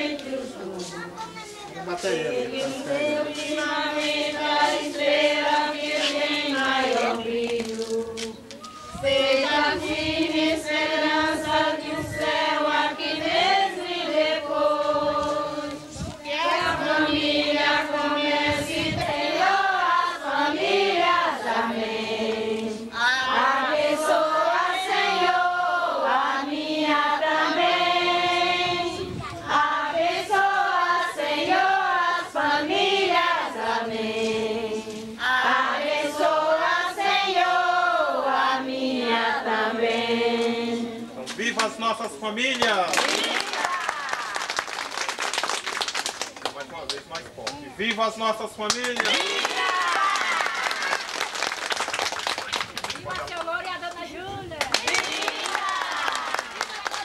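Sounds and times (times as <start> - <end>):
congregation singing: 0.0 - 43.8.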